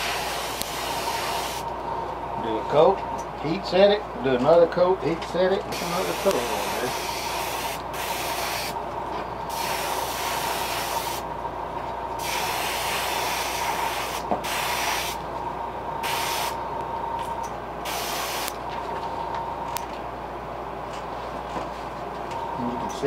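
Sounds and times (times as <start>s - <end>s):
airbrush air hiss: 0.0s - 1.6s, 5.7s - 8.8s, 9.5s - 11.2s, 12.2s - 15.2s, 16.0s - 16.6s, 17.8s - 18.5s
steady thin whine: 5.7s - 20.0s.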